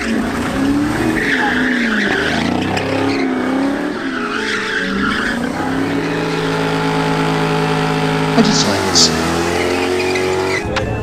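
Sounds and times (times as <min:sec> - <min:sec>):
car engine revving: 0:00.0 - 0:10.7
tyres squealing: 0:00.5 - 0:07.7.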